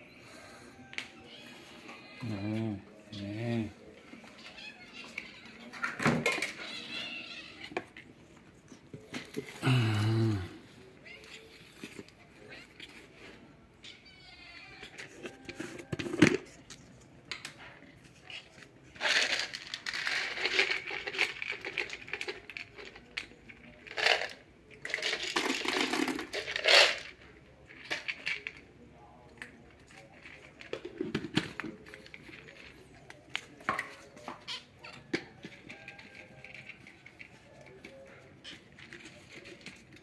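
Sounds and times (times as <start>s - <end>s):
kibble rattling in plastic feeder: 19.0s - 28.6s.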